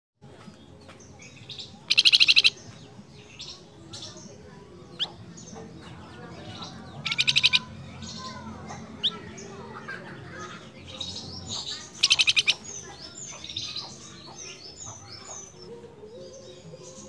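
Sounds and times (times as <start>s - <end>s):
bird fast trills: 1.9s - 2.6s, 7.0s - 8.4s, 11.0s - 12.8s.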